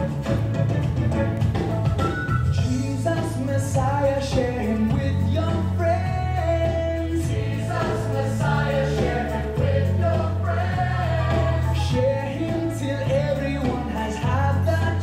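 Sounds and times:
bass line: 0.0s - 15.0s
choir singing gospel: 6.6s - 15.0s.

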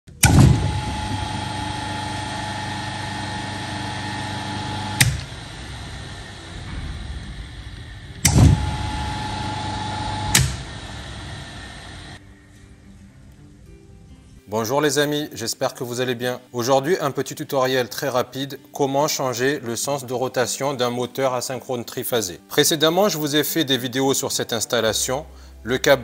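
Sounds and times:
electric motor humming and whining: 0.1s - 12.2s
switch click: 0.2s - 1.4s, 4.1s - 5.5s, 8.2s - 10.8s.

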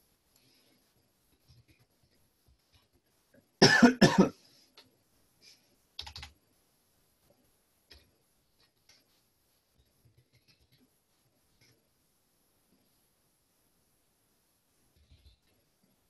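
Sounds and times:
man coughing: 3.6s - 4.4s
computer keyboard clicks: 6.0s - 6.3s.

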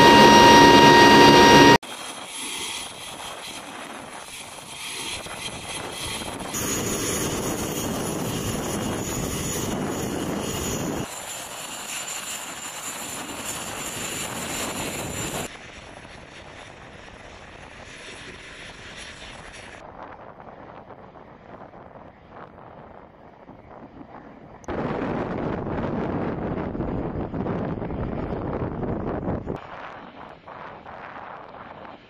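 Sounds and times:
thin high whine: 0.0s - 2.8s
aircraft engines rushing: 0.0s - 32.0s.

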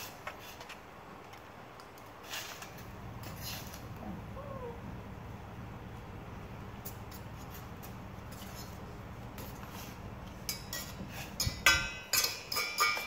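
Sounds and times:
faint low hum: 2.7s - 11.6s
fork clinking against a metal pot: 10.4s - 13.0s.

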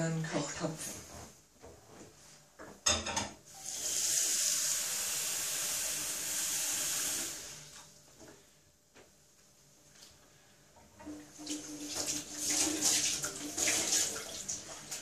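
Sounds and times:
tap water running into pot: 3.6s - 7.6s, 11.0s - 15.0s.

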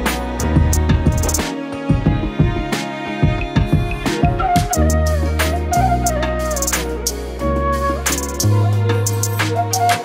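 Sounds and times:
sliding bending melody: 0.0s - 10.0s
drum hits: 0.4s - 4.8s.

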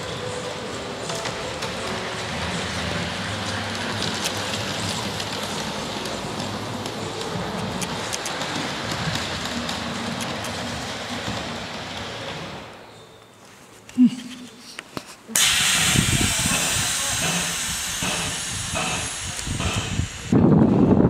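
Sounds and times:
model train wheels rattling: 1.0s - 12.7s, 15.4s - 21.0s
sharp clicks: 15.4s - 20.2s.

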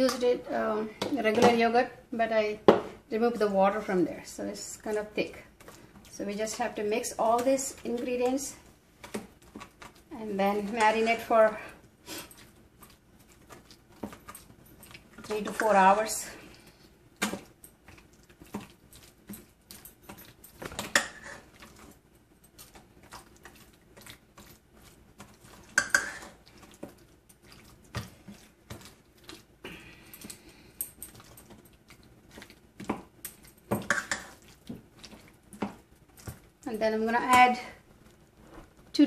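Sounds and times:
spatula clanking on bowl: 19.8s - 21.4s, 25.7s - 26.4s, 32.8s - 34.4s.

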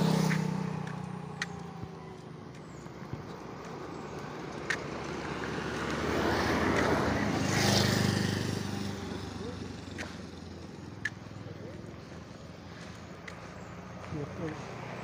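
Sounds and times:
car passing close: 0.0s - 15.0s
engine hum: 0.0s - 15.0s.

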